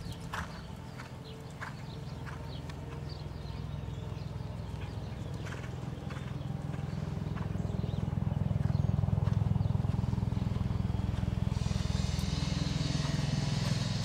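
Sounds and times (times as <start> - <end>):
hoofbeats on sand: 0.0 - 14.0
low rumble: 6.1 - 14.0.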